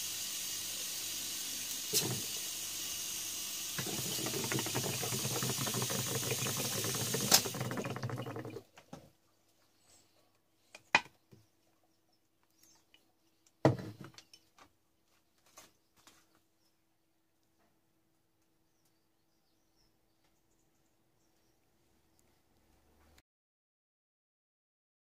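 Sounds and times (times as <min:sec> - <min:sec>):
compressor humming: 0:00.0 - 0:08.6
air bubbling through water: 0:03.8 - 0:08.7
plastic tubing knocking: 0:03.8 - 0:09.0.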